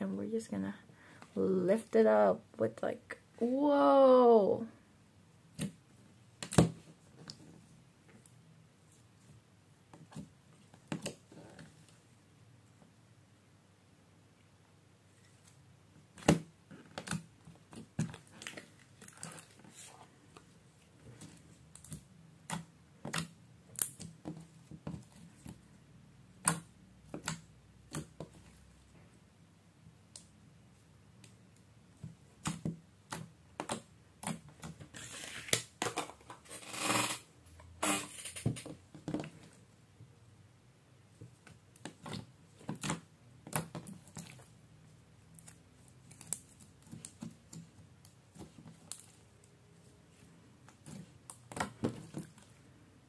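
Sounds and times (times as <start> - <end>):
slime clicking and popping: 21.7 - 24.4.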